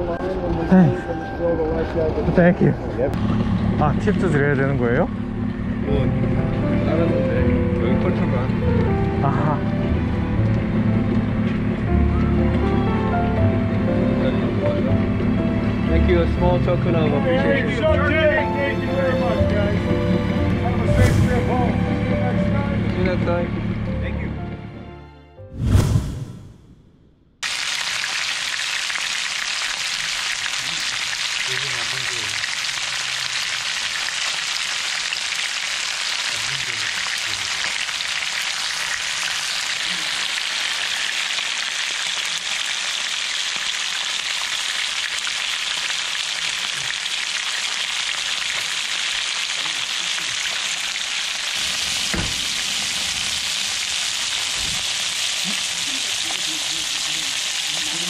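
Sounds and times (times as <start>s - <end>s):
fish sizzling in a frying pan: 27.4s - 58.0s.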